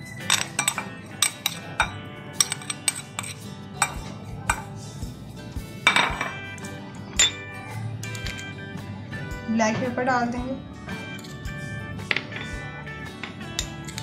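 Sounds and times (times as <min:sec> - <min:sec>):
spoon clinking glass bowls: 0:00.0 - 0:04.8, 0:05.8 - 0:08.6, 0:11.0 - 0:14.0
soft background music: 0:00.0 - 0:14.0.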